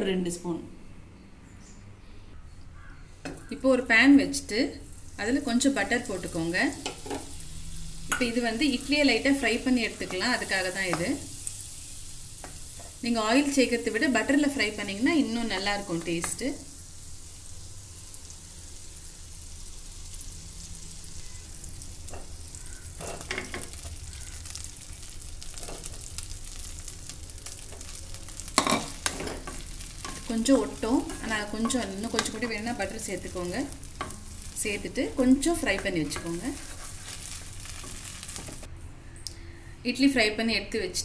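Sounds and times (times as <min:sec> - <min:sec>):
butter sizzling in pan: 0:04.7 - 0:38.7
wooden spatula stirring: 0:35.5 - 0:38.7.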